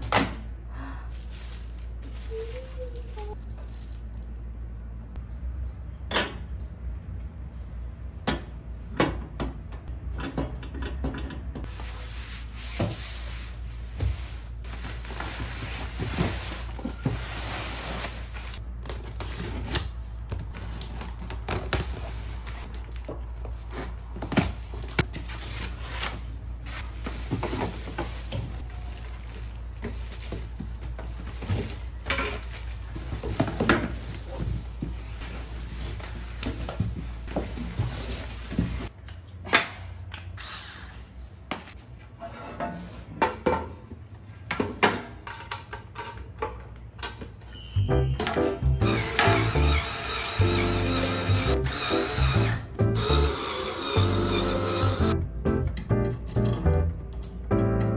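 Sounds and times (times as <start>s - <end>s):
cardboard and plastic rustling: 1.1s - 4.5s, 11.7s - 38.9s.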